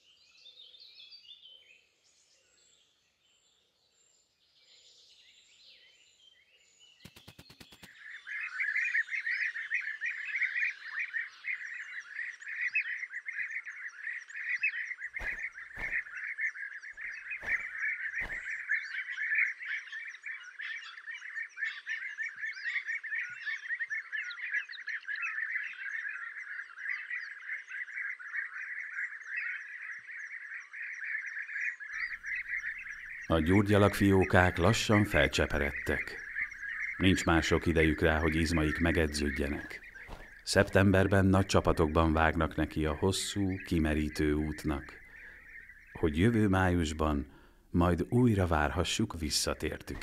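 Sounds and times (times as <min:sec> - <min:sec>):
bee-eaters chattering: 0:15.2 - 0:18.9, 0:32.0 - 0:50.0.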